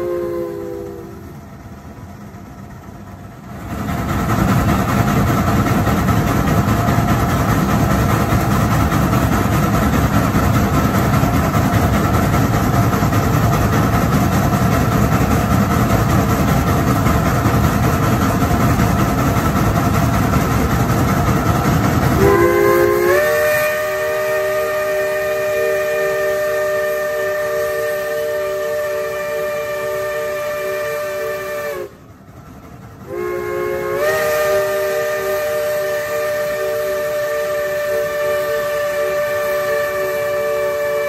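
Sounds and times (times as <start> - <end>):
steam locomotive chime whistle: 0.0 - 1.5, 22.1 - 32.1, 33.0 - 41.0
steam train rushing: 0.0 - 41.0.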